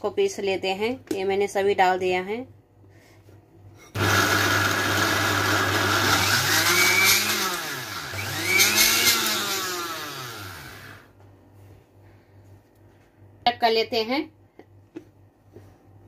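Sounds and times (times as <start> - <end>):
mixer grinder motor grinding: 4.0 - 11.1.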